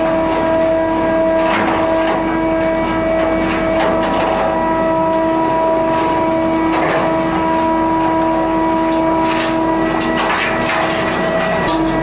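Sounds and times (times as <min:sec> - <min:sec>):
metallic clatter: 0:00.0 - 0:12.0
ship machinery whine and hum: 0:00.0 - 0:12.0.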